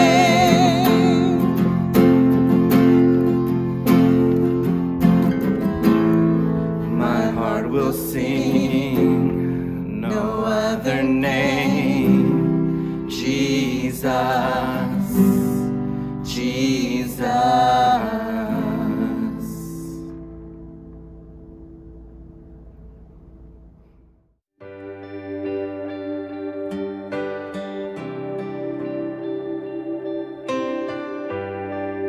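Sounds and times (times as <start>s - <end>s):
women singing long notes: 0.0s - 1.6s
acoustic guitar and keyboard: 0.0s - 23.3s, 24.6s - 32.0s.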